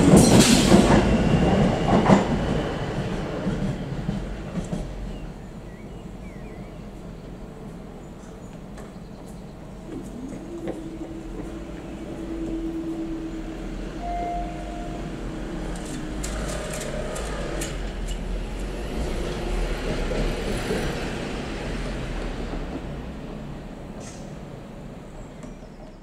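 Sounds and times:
crossing barriers humming: 0:00.0 - 0:25.2
bus passing: 0:09.4 - 0:25.4.

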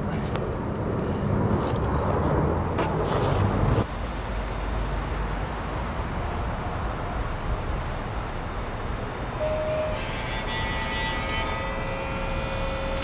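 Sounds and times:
city traffic hum: 0:00.0 - 0:13.0
traffic rumble: 0:00.0 - 0:13.0.

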